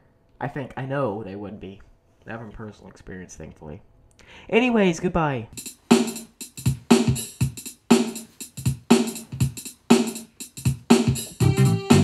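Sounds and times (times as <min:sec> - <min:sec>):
music with steady beat: 0:05.6 - 0:12.0.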